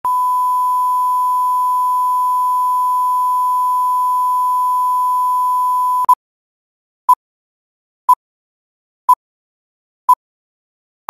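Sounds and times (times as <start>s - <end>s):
sine test tone: 0.1s - 6.1s.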